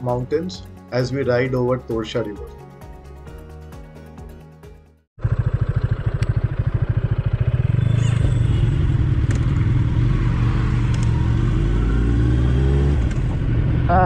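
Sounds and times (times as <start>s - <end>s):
motorcycle engine running: 5.2s - 11.8s.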